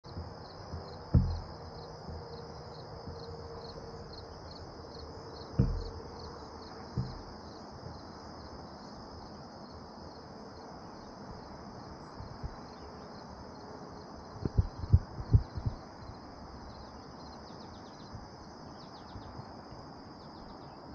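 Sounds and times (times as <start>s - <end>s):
dull low thumps: 0.0s - 8.1s, 12.2s - 12.8s, 14.4s - 16.1s
insects trilling: 0.1s - 20.9s.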